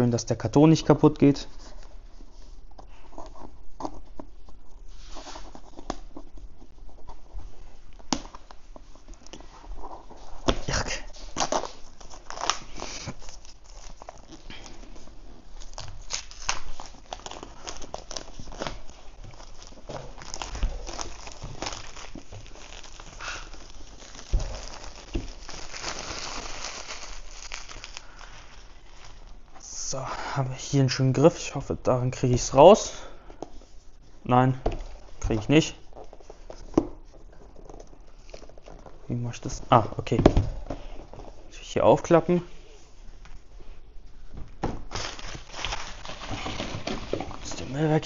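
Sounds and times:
plastic film crinkling: 4.3s - 29.6s, 44.8s - 48.0s.

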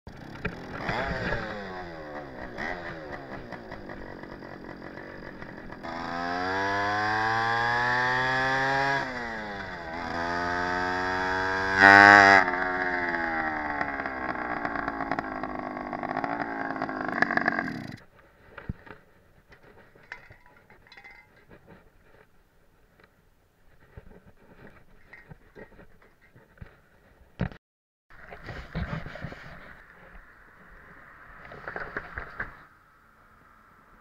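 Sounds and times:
moped two-stroke engine running: 0.1s - 18.0s.

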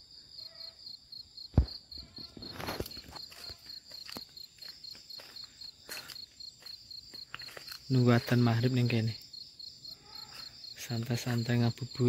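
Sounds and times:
insects chirping: 0.0s - 12.0s
footsteps on paved path: 1.6s - 8.5s.

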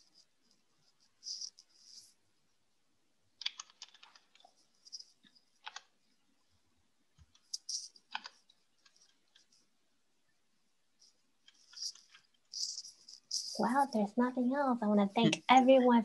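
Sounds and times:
typing on computer keyboard: 3.4s - 5.9s, 7.2s - 9.6s.

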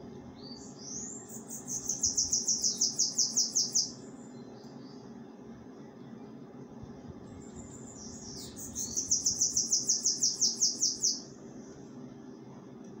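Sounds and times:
steady low hum: 0.0s - 13.0s
bird singing fast repeated notes: 0.4s - 5.1s, 7.7s - 11.4s.

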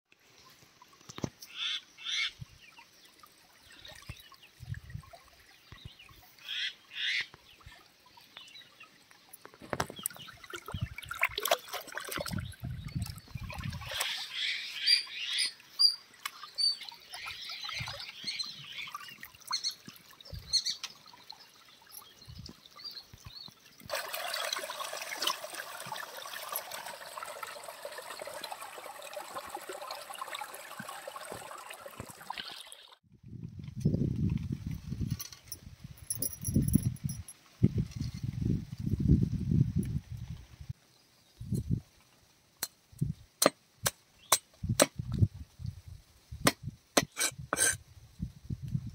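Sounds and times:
stream water splashing: 0.4s - 33.0s
running water rushing: 2.1s - 33.0s.

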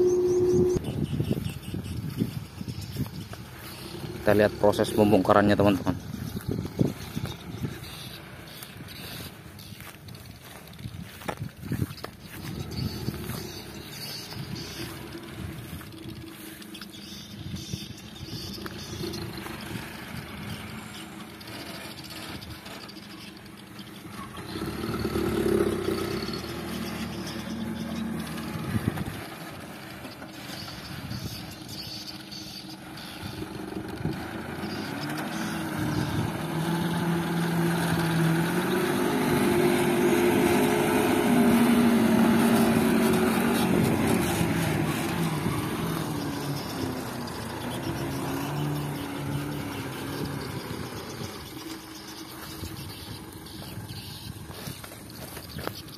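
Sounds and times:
diesel truck engine revving: 0.0s - 55.9s.

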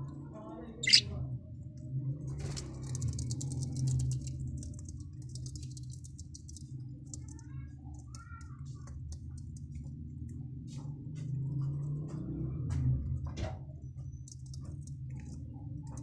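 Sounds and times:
chicks chirping: 0.8s - 1.0s
chicks ticking: 0.8s - 1.0s.

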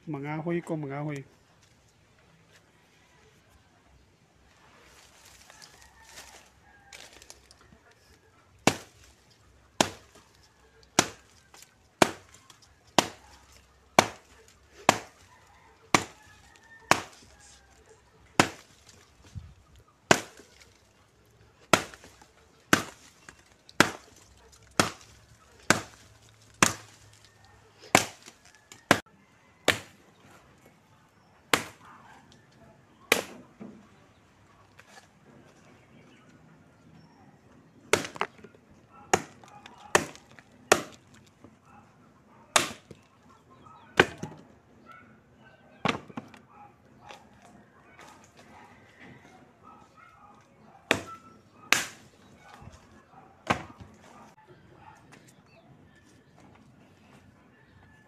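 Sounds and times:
chopping dry branches: 4.9s - 30.0s, 31.5s - 32.0s, 33.1s - 33.5s, 37.9s - 41.5s, 42.5s - 43.1s, 43.9s - 44.4s, 45.8s - 48.7s, 50.2s - 54.3s.

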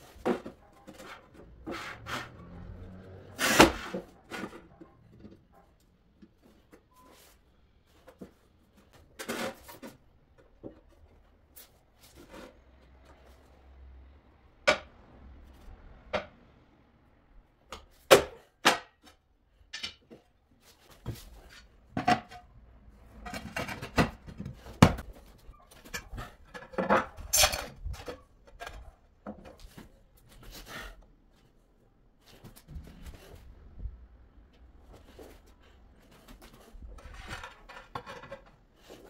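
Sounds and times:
tiles scraping: 0.0s - 5.5s, 19.7s - 31.5s, 34.9s - 39.0s
tiles clacking on concrete: 17.8s - 20.3s, 25.8s - 29.8s, 36.7s - 39.0s.

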